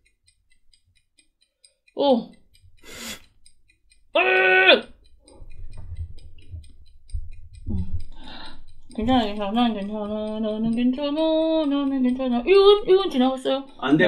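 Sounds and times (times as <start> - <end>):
breathy hissing: 2.8 - 3.4, 7.8 - 9.0
person crying out ooh: 4.2 - 4.9
low bumps: 5.1 - 10.0.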